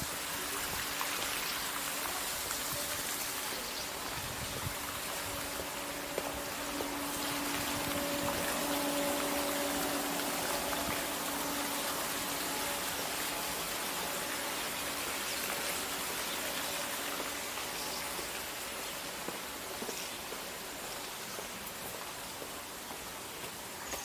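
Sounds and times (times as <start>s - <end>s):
fountain water splashing: 0.0s - 24.0s.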